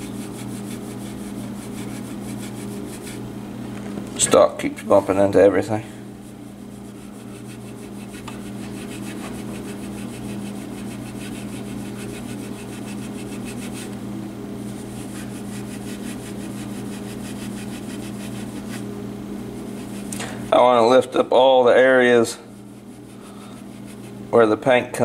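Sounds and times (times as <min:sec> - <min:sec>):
pad scrubbing painted wood: 0:00.0 - 0:03.2, 0:06.2 - 0:14.0, 0:14.6 - 0:18.9, 0:19.5 - 0:20.2, 0:22.6 - 0:24.2.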